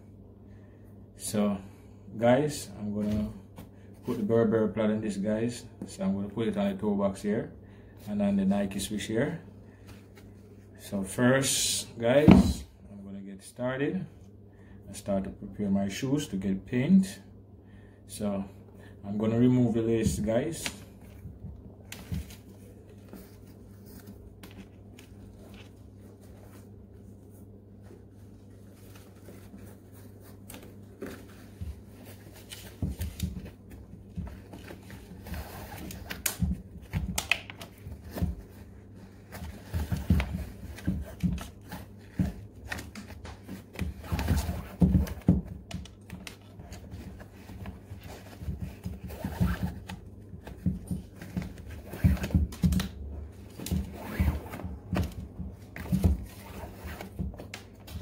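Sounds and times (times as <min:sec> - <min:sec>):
low steady hum: 0:00.0 - 0:58.0
shoelace rustling and scraping: 0:20.5 - 0:36.9, 0:46.3 - 0:58.0.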